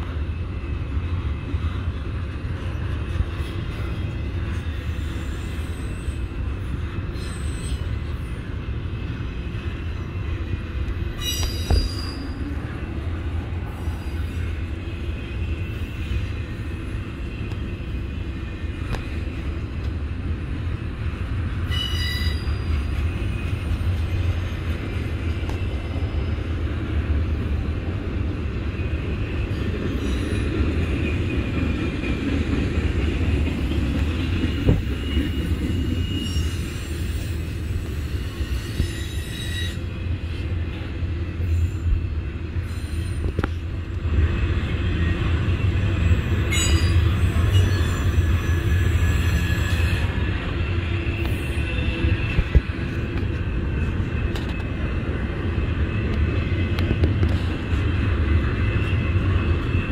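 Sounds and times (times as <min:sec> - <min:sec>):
freight train wheels rumbling on rail: 0:00.0 - 0:59.9
high wheel squeals: 0:07.1 - 0:08.5, 0:11.1 - 0:12.5, 0:21.7 - 0:24.7, 0:34.4 - 0:39.9, 0:46.0 - 0:50.3.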